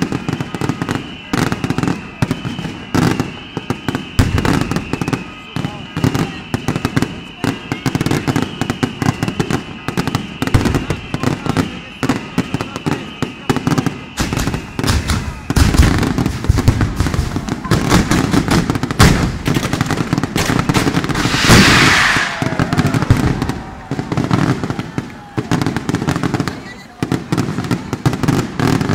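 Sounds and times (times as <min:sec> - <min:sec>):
firecrackers crackling: 0:00.0 - 0:28.9
loud hiss: 0:21.0 - 0:24.3.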